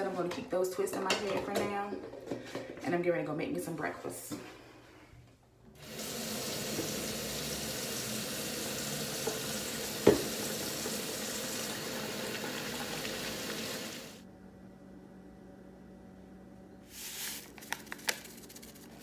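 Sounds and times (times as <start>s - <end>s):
faucet running into steel sink: 5.8s - 14.2s.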